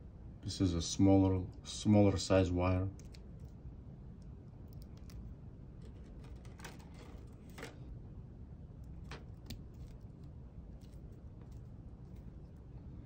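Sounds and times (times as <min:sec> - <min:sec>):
low room hum: 0:00.0 - 0:13.0
fingers handling wires: 0:03.0 - 0:03.6, 0:04.2 - 0:07.9, 0:08.8 - 0:12.8.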